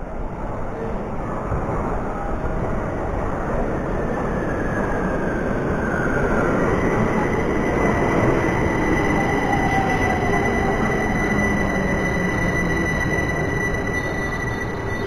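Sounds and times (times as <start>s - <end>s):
train wheels rumbling on rail: 0.0s - 15.0s
faint high whine: 4.3s - 15.0s.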